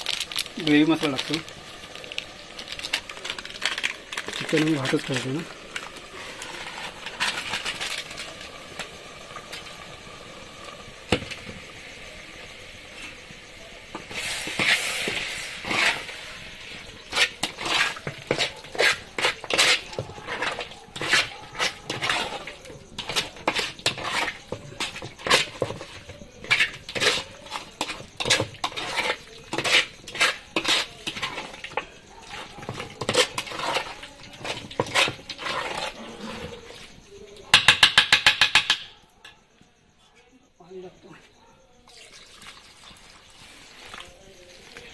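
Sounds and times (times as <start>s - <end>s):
metal spoon scraping a pot: 0.6s - 8.5s, 13.9s - 36.9s.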